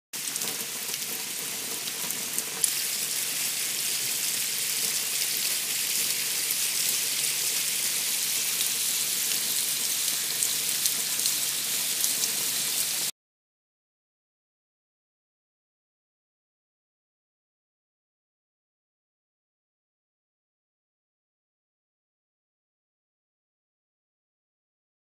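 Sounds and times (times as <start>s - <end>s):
water running down a rainchain: 0.2s - 13.1s.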